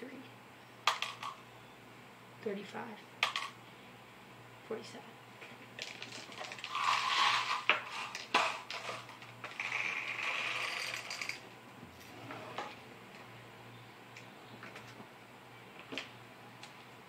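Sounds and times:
rubbing or scraping: 0:06.3 - 0:11.3.

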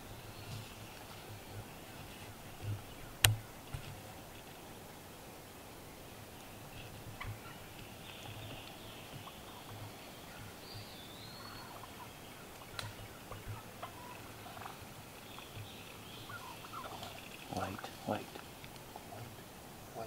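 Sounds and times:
turkeys calling: 0:06.2 - 0:19.6.

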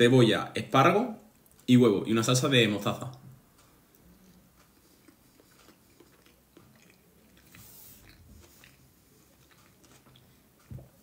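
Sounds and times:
mouth chewing food: 0:03.8 - 0:11.0.

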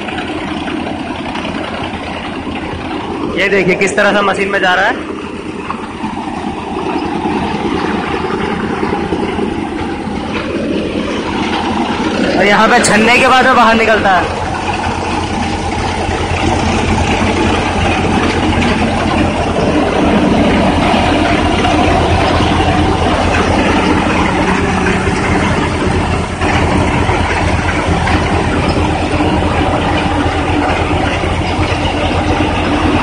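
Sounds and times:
threshing machine noise: 0:00.0 - 0:33.0
tractor engine running: 0:00.0 - 0:33.0.

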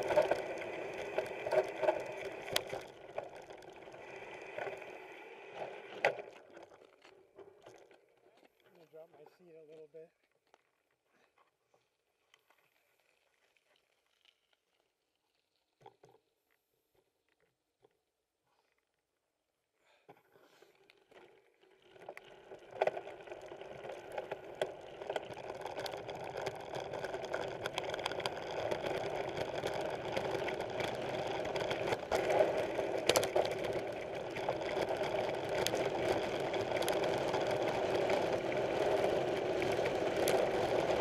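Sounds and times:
bike rattling: 0:00.0 - 0:04.6, 0:21.8 - 0:41.0
bike tyres on dirt trail: 0:00.0 - 0:17.0, 0:19.8 - 0:41.0.

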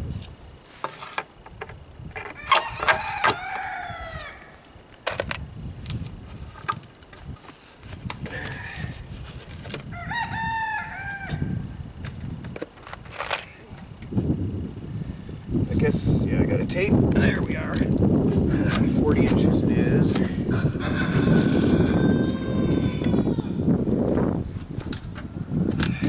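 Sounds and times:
rooster crowing: 0:02.4 - 0:04.6, 0:09.9 - 0:11.7, 0:20.5 - 0:23.6.

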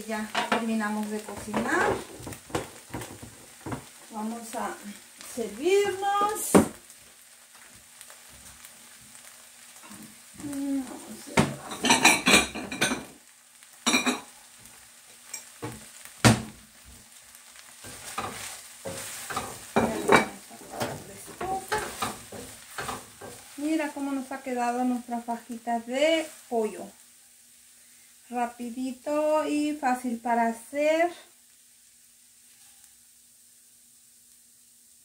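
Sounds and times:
dishes and utensils clattering: 0:11.4 - 0:13.2.

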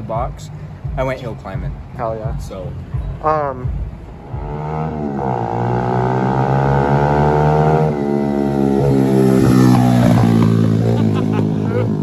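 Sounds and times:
pit bike engine revving: 0:03.7 - 0:12.0.

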